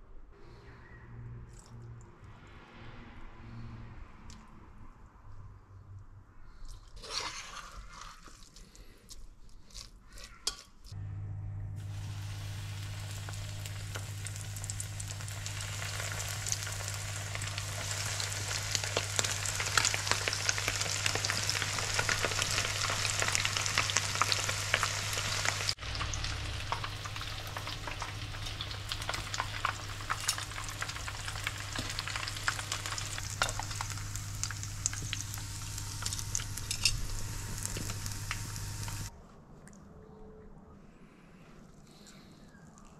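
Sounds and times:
low even hum: 11.0s - 42.9s
fish frying in hot oil: 11.8s - 39.1s.

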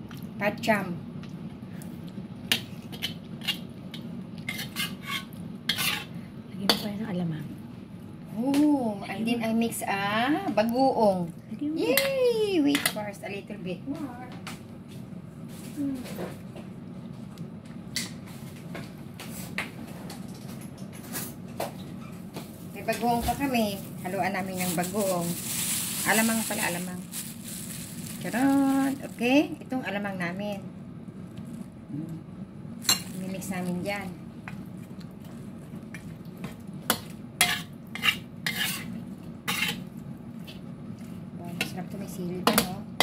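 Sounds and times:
low steady hum: 0.0s - 43.0s
metal spatula scraping wok: 4.5s - 6.2s, 37.4s - 39.8s
light sizzling: 22.7s - 30.6s, 32.7s - 41.8s
food frying in a wok: 23.4s - 29.9s, 32.8s - 43.0s.

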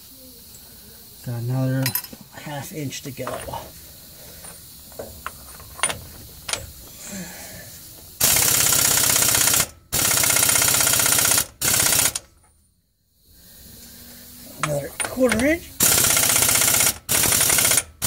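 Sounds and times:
air impact wrench hammering: 8.2s - 12.2s, 14.6s - 18.0s.

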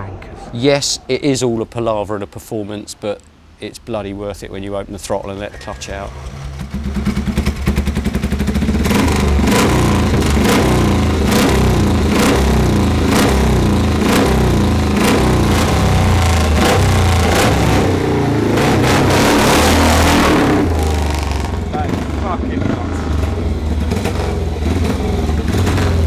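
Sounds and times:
motorcycle engine starting and revving: 5.4s - 26.0s.

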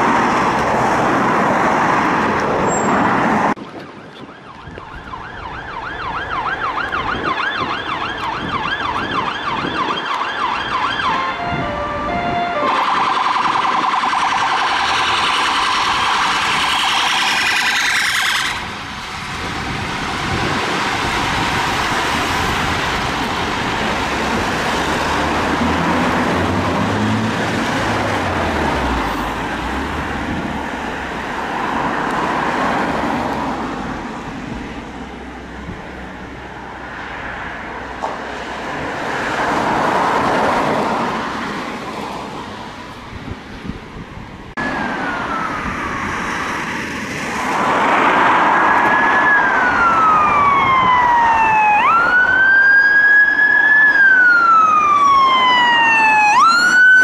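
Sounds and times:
passing vehicles: 0.0s - 57.0s
emergency siren yelping: 3.6s - 18.9s, 44.6s - 57.0s.

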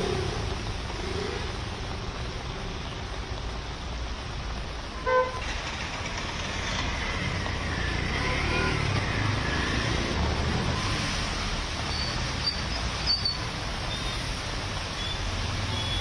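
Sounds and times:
traffic on a wet street: 0.0s - 16.0s
vehicle horn toot: 5.0s - 5.4s.

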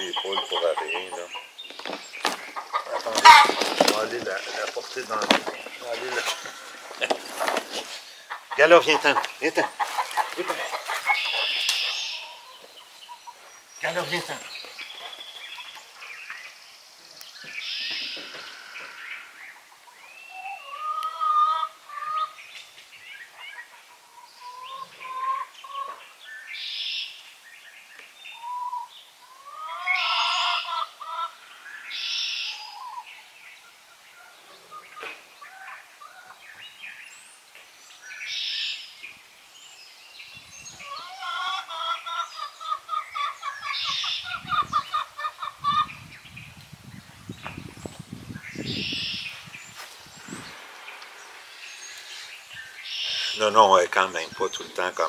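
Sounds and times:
hens clucking and squawking: 0.0s - 16.0s, 18.0s - 22.4s, 23.3s - 26.1s, 28.4s - 33.1s, 40.7s - 46.1s.

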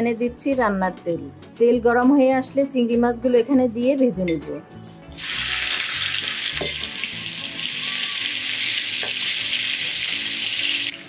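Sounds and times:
prawns sizzling in hot oil: 5.2s - 11.0s.

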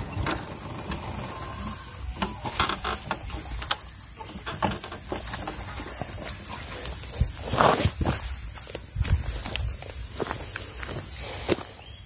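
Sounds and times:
insects droning: 0.0s - 12.0s
footsteps on gravel: 5.1s - 11.9s.

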